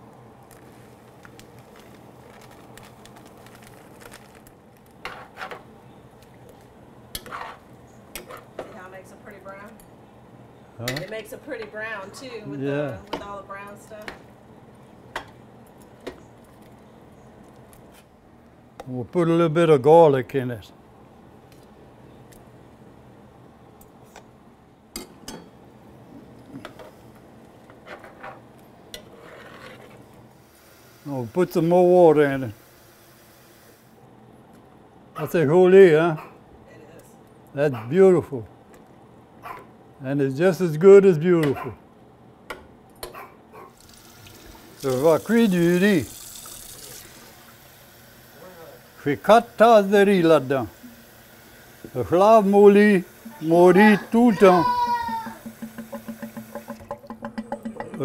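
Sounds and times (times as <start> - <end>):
packet rustling: 0.4 - 5.0
stew sizzling in a pot: 30.3 - 34.0, 43.8 - 57.3
metal scraping against pot: 55.3 - 58.0.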